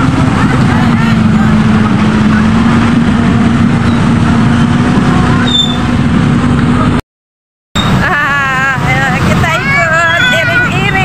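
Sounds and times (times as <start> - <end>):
motor scooter engines running: 0.0 - 7.0, 7.8 - 11.0.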